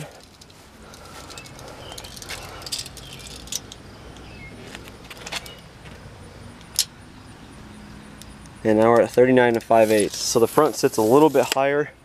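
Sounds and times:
tape measure clicks and rattles: 0.0s - 5.6s, 8.7s - 11.7s.

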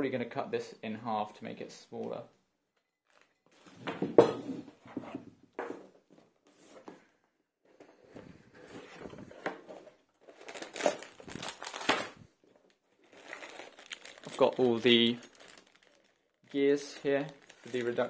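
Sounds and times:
parts rustling and knocking: 3.1s - 16.1s.

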